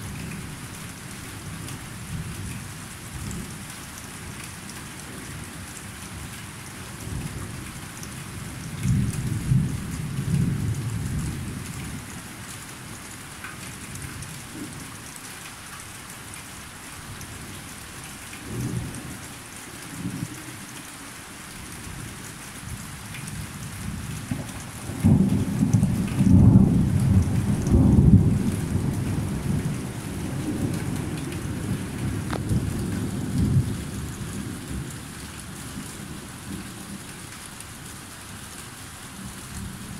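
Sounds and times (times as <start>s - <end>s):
steady rain falling: 0.0s - 39.9s
thunder rumbling: 23.8s - 34.9s.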